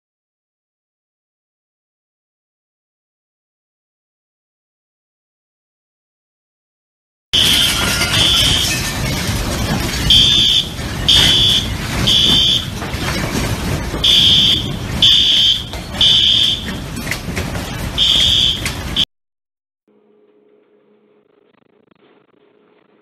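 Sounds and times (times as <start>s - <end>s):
loud rumbling rattling noise: 7.4s - 19.0s
smoke alarm beeping: 10.1s - 12.8s, 14.0s - 16.8s, 18.0s - 19.0s.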